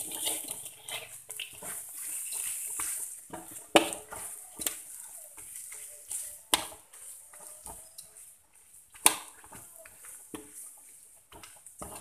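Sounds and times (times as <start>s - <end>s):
paste sizzling in a wok: 0.0s - 12.0s
spatula scraping and knocking pan: 0.0s - 12.0s.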